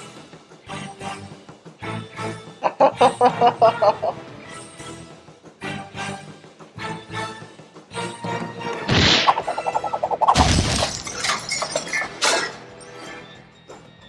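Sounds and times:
background music: 0.0 - 14.0
loud explosion: 8.9 - 11.2
glass shattering: 10.2 - 12.9.

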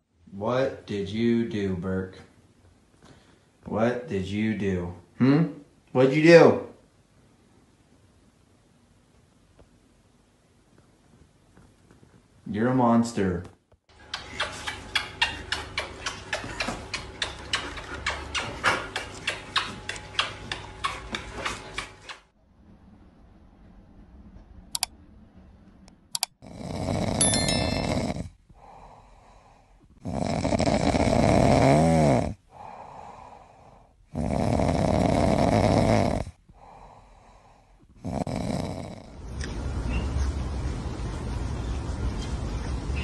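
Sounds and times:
single clicks: 26.1 - 26.3
squirrel snoring: 26.4 - 39.3.

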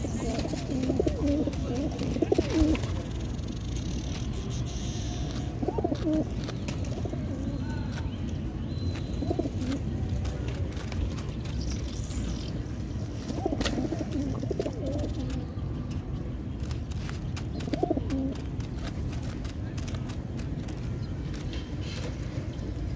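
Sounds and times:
pigeons cooing: 0.0 - 3.2, 5.3 - 7.6, 9.2 - 10.0, 13.2 - 15.6, 17.4 - 18.5.

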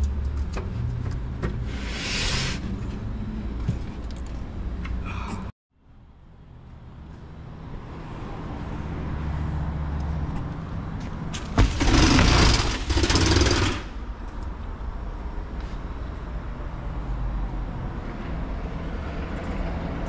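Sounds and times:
roll-up door rattling open: 11.6 - 13.9.

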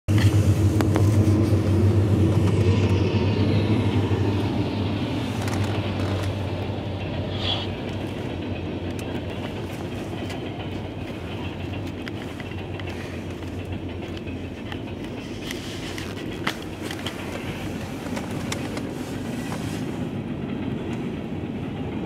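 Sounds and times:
diesel locomotive engine drone: 0.1 - 22.0
freight cars clacking on rails: 0.1 - 22.0.

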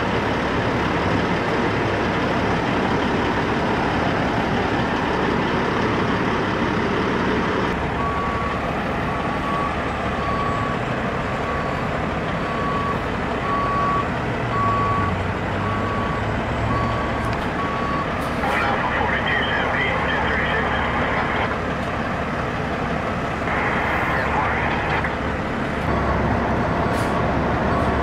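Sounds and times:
truck engine and road noise: 0.0 - 28.0
reversing alarm beeping: 8.0 - 8.6, 9.3 - 10.8, 11.4 - 21.5, 27.7 - 28.0.

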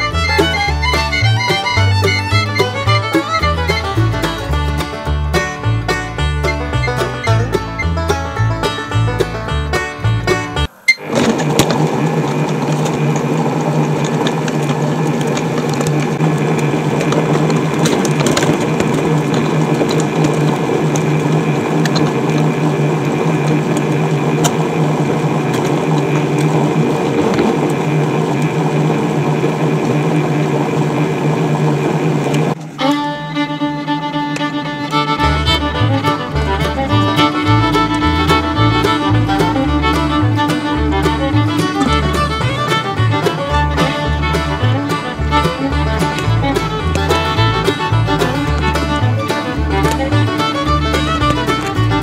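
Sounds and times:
banjo and fiddle music: 0.0 - 28.5, 32.5 - 52.0
food processor motor humming: 10.7 - 32.8, 36.2 - 52.0.

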